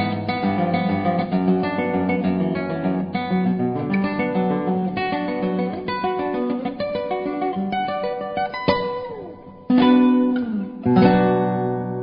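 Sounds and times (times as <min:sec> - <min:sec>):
acoustic guitar plucked notes: 0:00.0 - 0:12.0.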